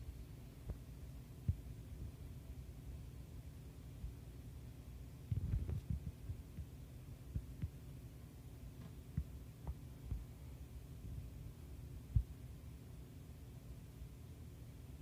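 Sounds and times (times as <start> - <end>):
low background hum: 0.0 - 15.0
soft low thumps: 7.3 - 7.8, 8.8 - 10.4, 12.1 - 12.4.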